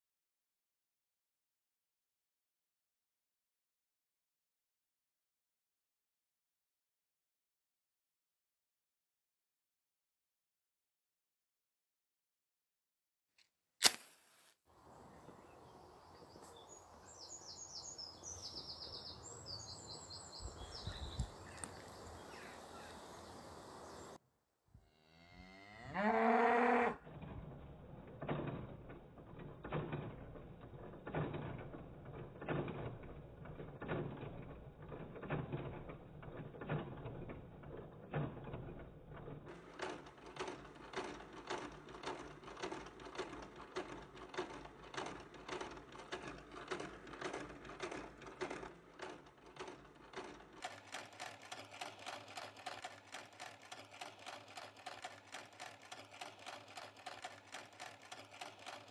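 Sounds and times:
rhythmic mechanical clatter: 0:27.1 - 0:58.9.

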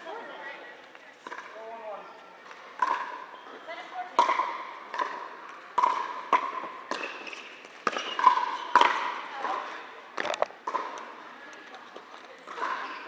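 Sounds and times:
ball bouncing on court: 0:01.2 - 0:01.6, 0:02.4 - 0:03.5, 0:04.1 - 0:11.2
paddles striking plastic ball: 0:04.2 - 0:09.6.

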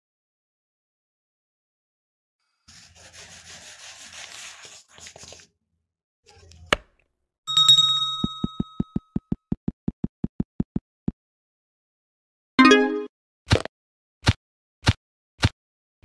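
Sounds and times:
bright bell ding: 0:07.5 - 0:09.0.

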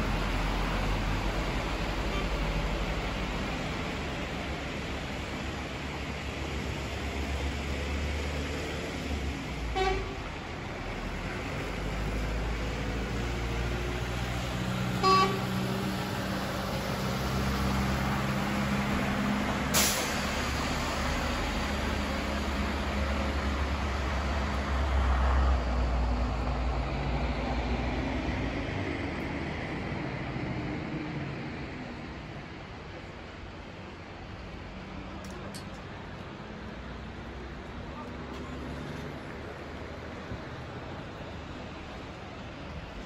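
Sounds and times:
traffic and vehicle engines rumbling: 0:00.0 - 0:43.0
horn toots: 0:15.0 - 0:15.5.

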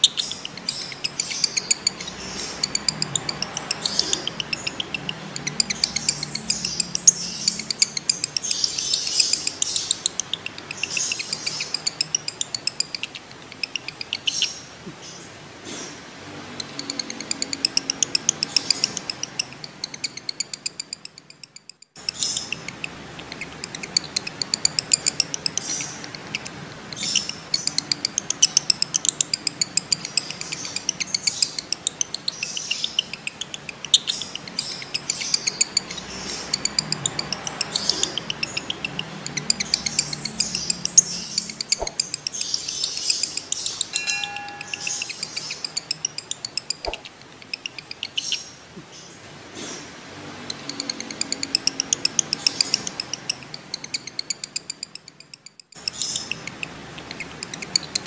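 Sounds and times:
lovebirds chattering trills: 0:00.0 - 0:58.0
sharp clicks: 0:16.6 - 0:48.3.

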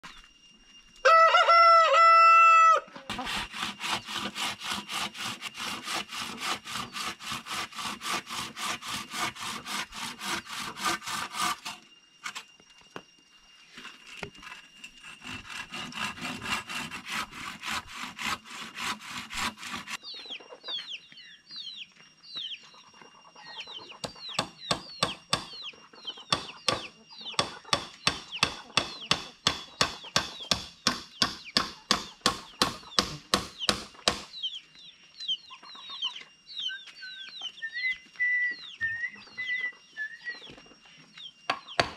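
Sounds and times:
rooster crowing: 0:01.0 - 0:03.2
rapid sawing strokes: 0:03.1 - 0:12.4, 0:13.8 - 0:20.0
bird chirps: 0:20.0 - 0:30.5, 0:31.1 - 0:41.9.

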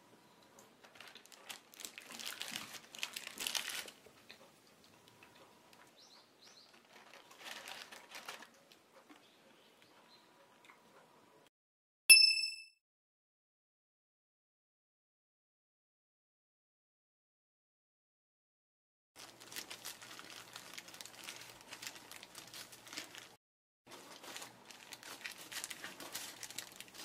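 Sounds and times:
paper crinkling: 0:00.8 - 0:04.1, 0:06.6 - 0:08.8, 0:19.2 - 0:27.0
bright ding: 0:12.1 - 0:12.8.

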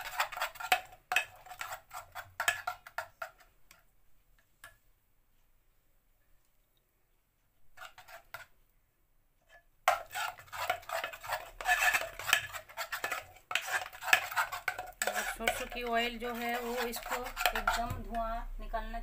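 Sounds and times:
spoon scraping steel bowl: 0:00.0 - 0:03.8, 0:07.7 - 0:08.5, 0:09.5 - 0:18.2.

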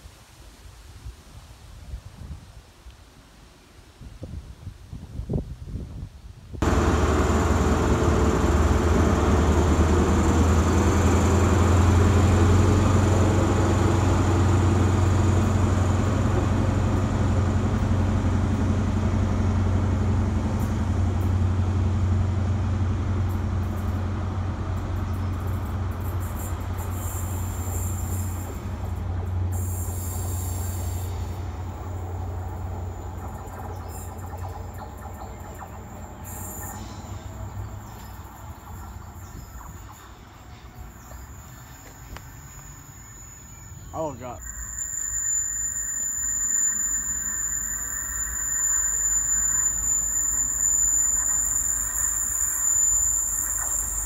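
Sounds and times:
diesel train engine hum: 0:06.6 - 0:54.0
thin high whistle: 0:41.4 - 0:54.0.

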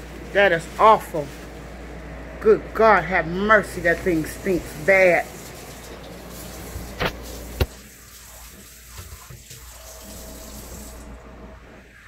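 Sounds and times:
water running with a hiss: 0:03.6 - 0:11.2.

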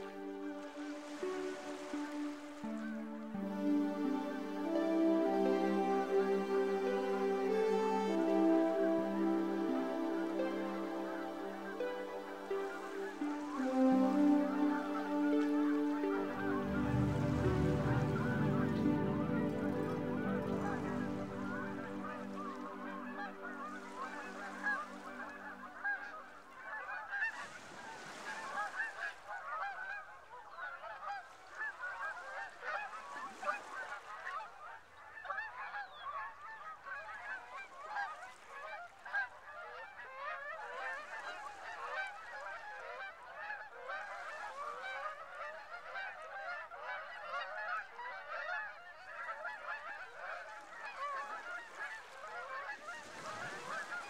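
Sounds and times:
music chords: 0:00.0 - 0:26.0
flock of geese honking: 0:00.0 - 0:54.0.

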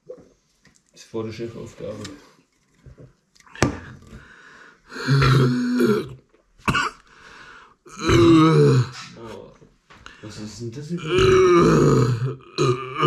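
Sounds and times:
man clearing his throat: 0:05.0 - 0:07.0
man coughing: 0:06.7 - 0:07.0.

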